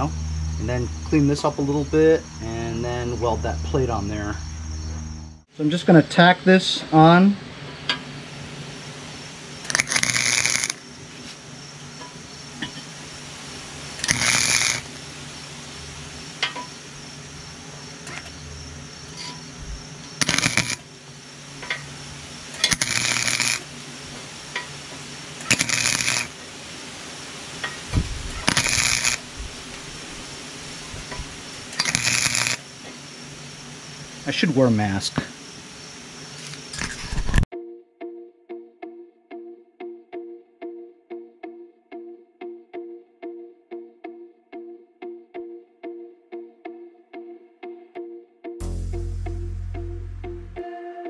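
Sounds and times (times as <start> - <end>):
low hum: 0.0 - 5.4, 18.1 - 20.7, 48.6 - 50.7
welder crackling sizzle: 9.2 - 17.0, 19.1 - 37.4.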